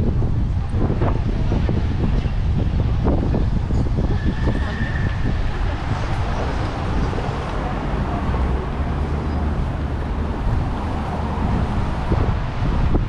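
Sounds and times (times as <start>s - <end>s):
deep low traffic rumble: 0.0s - 13.0s
passing vehicles: 0.0s - 13.0s.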